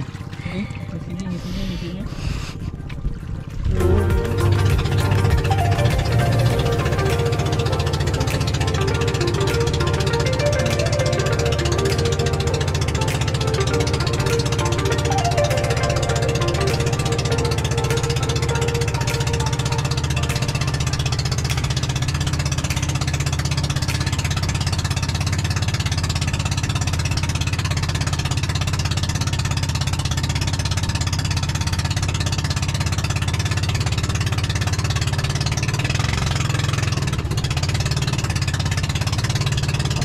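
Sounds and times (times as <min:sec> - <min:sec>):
boat engine droning: 0:00.0 - 0:40.0.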